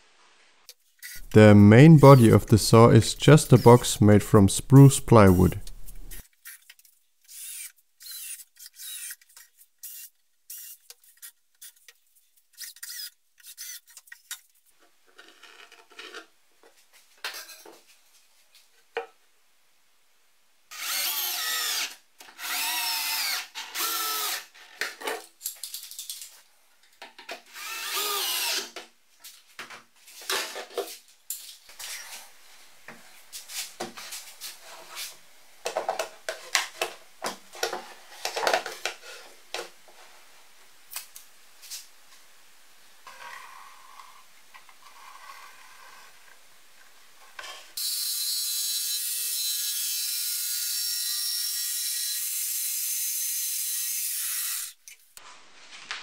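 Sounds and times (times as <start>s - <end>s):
cordless drill driving screws: 7.3s - 9.2s, 9.8s - 10.8s, 12.6s - 13.9s, 20.7s - 24.5s, 27.5s - 28.8s.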